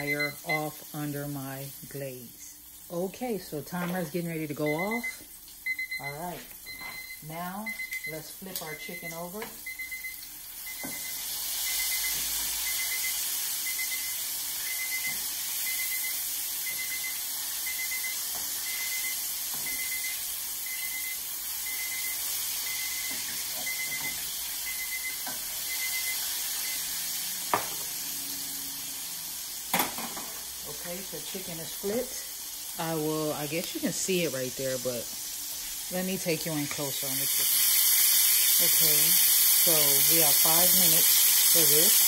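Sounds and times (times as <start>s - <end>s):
kitchen timer beeping: 0.0s - 0.9s, 4.4s - 27.6s
food sizzling in hot oil: 0.0s - 42.0s.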